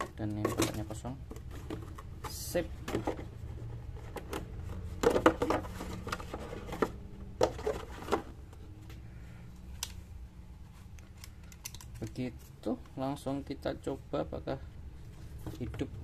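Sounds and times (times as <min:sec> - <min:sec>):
cardboard box rustling and clacking: 0:04.0 - 0:08.4.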